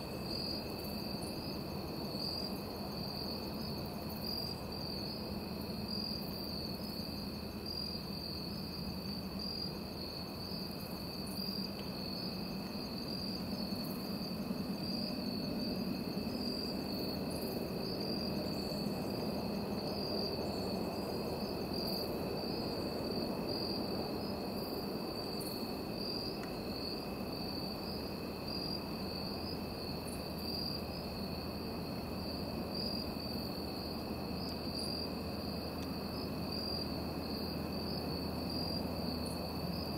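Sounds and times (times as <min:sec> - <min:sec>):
crickets trilling: 0:00.0 - 0:39.9
low background hiss: 0:00.0 - 0:39.9.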